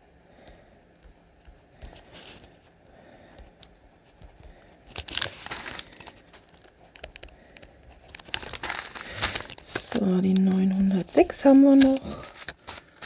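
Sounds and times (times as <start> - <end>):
plastic bags crinkling: 4.9 - 7.2, 8.0 - 13.0.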